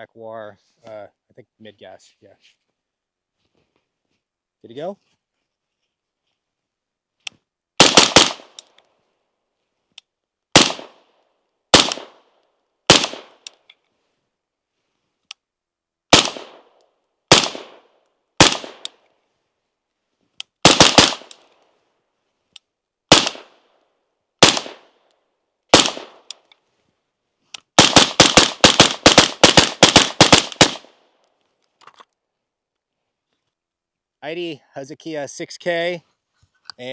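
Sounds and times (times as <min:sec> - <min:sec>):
suppressed rifle gunshots: 0:07.8 - 0:08.6, 0:10.5 - 0:11.0, 0:11.7 - 0:12.3, 0:12.9 - 0:13.4, 0:16.1 - 0:16.7, 0:17.3 - 0:18.9, 0:20.6 - 0:21.4, 0:23.1 - 0:23.6, 0:24.4 - 0:24.9, 0:25.7 - 0:26.3, 0:27.8 - 0:30.9.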